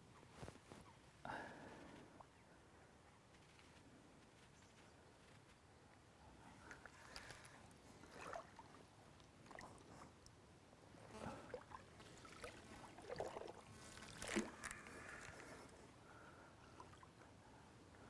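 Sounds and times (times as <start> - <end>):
lake water splashing: 8.0 - 9.9, 11.3 - 15.5.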